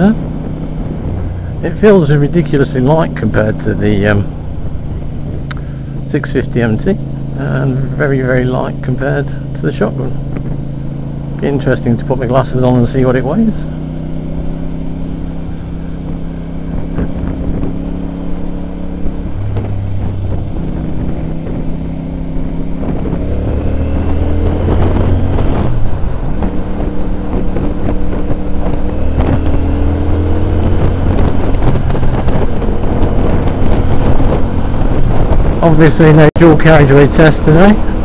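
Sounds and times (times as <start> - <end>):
wind buffeting microphone: 0.0 - 1.7, 13.9 - 38.0
motorcycle engine revving: 0.0 - 38.0.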